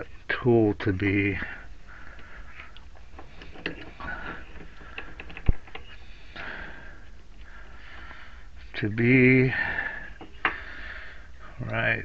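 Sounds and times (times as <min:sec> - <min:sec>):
handling noises at metal lathe: 0:03.0 - 0:06.1.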